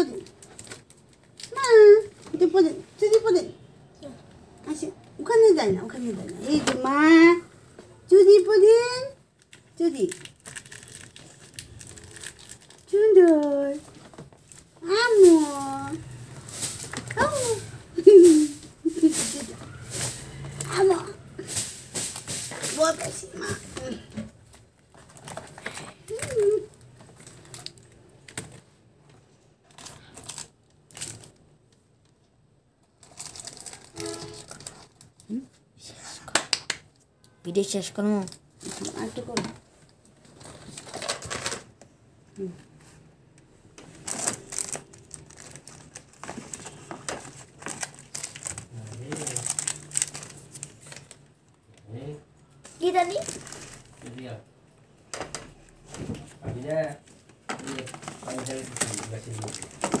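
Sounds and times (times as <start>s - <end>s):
rustling of small items: 0.0s - 35.7s, 36.9s - 60.0s
plastic objects clicking and rattling: 0.1s - 1.6s, 9.4s - 14.7s, 24.8s - 31.5s, 32.8s - 35.3s, 40.2s - 41.9s, 43.8s - 51.4s, 57.0s - 60.0s.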